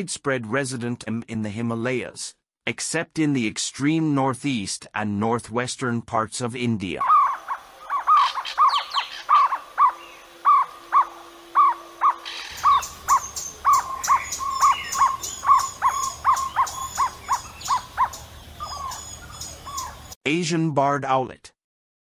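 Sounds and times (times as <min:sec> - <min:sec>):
owlet calling short notes: 0:07.0 - 0:20.0.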